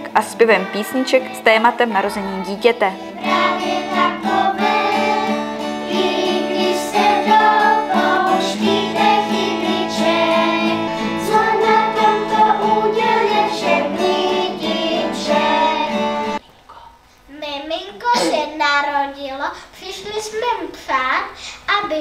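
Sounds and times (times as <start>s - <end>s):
acoustic guitar: 0.0s - 16.4s, 18.0s - 18.6s
children singing: 0.0s - 16.4s.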